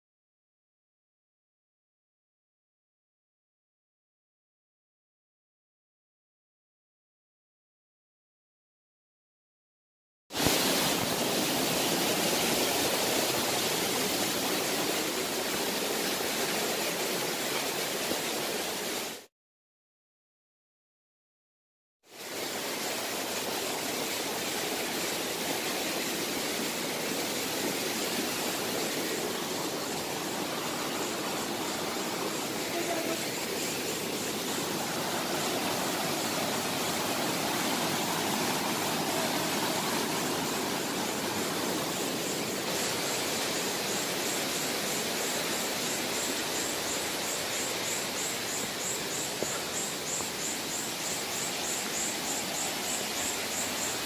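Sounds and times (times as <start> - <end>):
water rushing over rocks: 10.4 - 19.3, 22.1 - 54.0.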